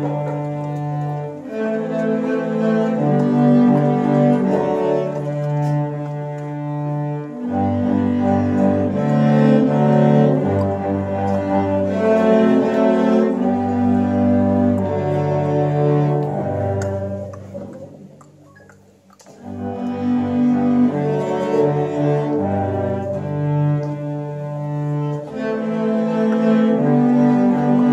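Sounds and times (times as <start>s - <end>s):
cello ensemble playing: 0.0s - 27.9s.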